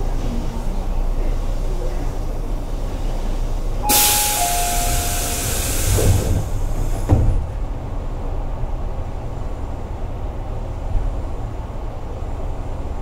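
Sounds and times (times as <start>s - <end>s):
train low rumble: 0.0s - 13.0s
compressed air hiss: 3.8s - 7.1s.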